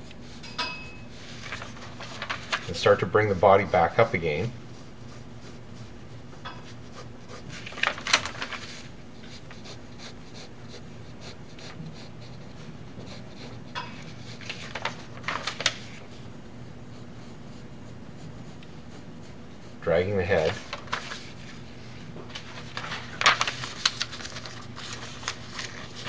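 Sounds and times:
steady low hum: 0.0s - 26.0s
pencil scratching on paper: 2.7s - 7.8s, 9.2s - 14.8s, 15.8s - 20.5s.

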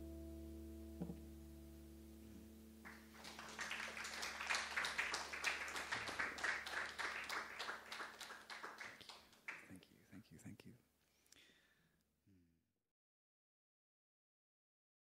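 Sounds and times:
acoustic guitar chord ringing: 0.0s - 3.2s
audience applauding: 2.8s - 9.8s.

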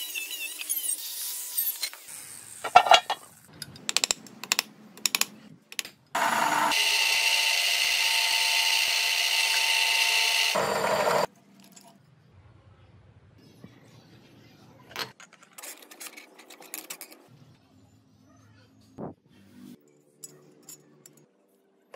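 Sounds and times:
tools knocking and clicking: 2.7s - 6.0s
power tool whining: 6.2s - 11.3s.

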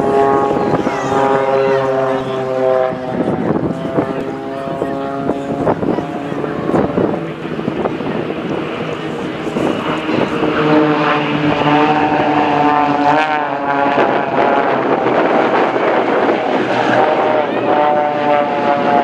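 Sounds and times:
propeller planes droning past: 0.0s - 19.0s.

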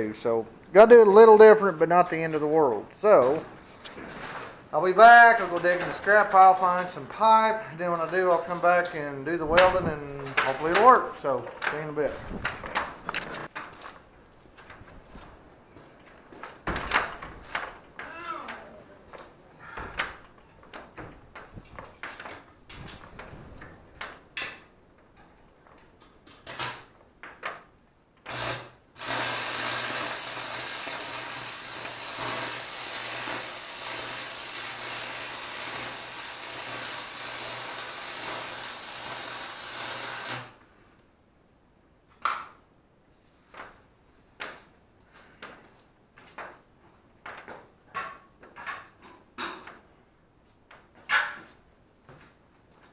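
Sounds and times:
welding arc hissing: 28.3s - 40.5s.

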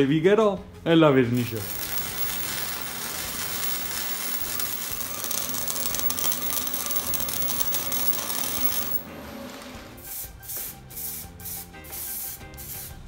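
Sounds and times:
arc welding crackling sizzle: 1.4s - 10.4s.

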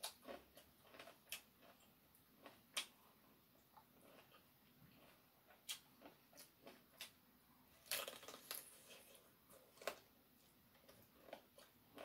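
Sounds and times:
crunching of fried chicken: 0.0s - 3.0s, 7.8s - 10.1s.

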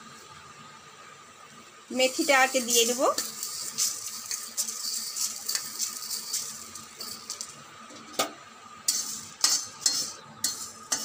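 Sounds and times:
seeds rattling onto pan: 2.0s - 7.6s
spatula scraping and knocking pan: 2.4s - 7.5s, 8.9s - 11.0s.

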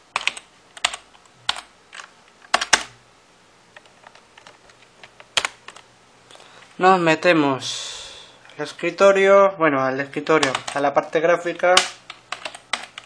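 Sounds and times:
computer keyboard typing: 0.1s - 3.0s, 3.8s - 5.8s, 10.1s - 10.9s, 11.6s - 13.0s.

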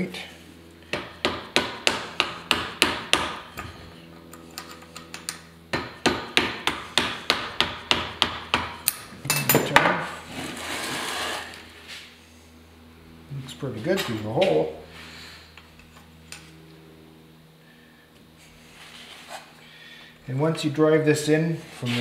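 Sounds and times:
scraping rustle: 10.2s - 12.1s, 21.6s - 22.0s.

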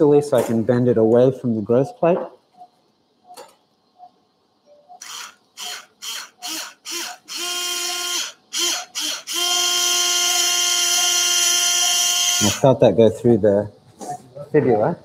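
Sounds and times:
power drill drilling bone: 5.0s - 12.6s.

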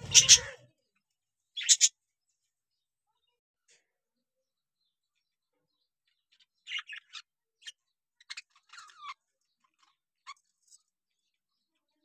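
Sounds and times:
bird chicks chirping: 0.0s - 0.9s, 1.5s - 2.0s, 5.0s - 12.0s.

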